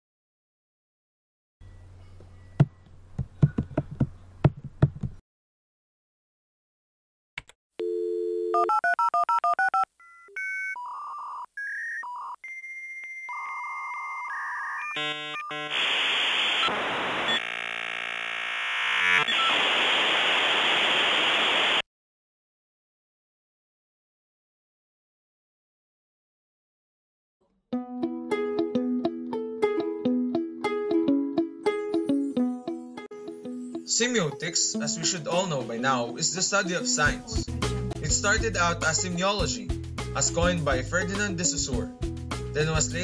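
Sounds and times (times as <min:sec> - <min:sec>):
dial tone: 0:07.8 - 0:15.7
harsh modem hissing: 0:15.0 - 0:21.8.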